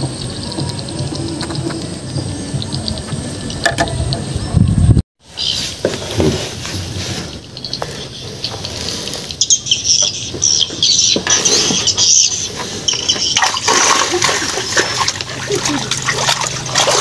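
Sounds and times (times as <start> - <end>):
small birds chirping: 5.3 - 14.7.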